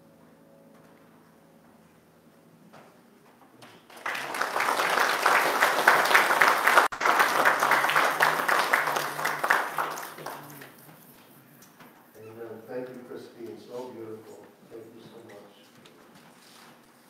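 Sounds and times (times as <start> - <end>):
congregation applauding: 3.7 - 11.0.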